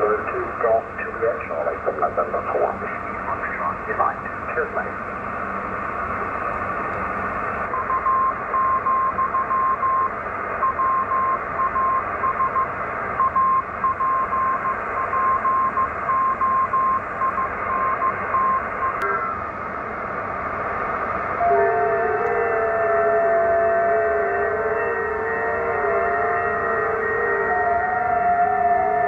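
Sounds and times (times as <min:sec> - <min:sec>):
radio band noise hiss: 0:00.0 - 0:07.8, 0:17.2 - 0:21.4
morse code tone: 0:07.7 - 0:19.4.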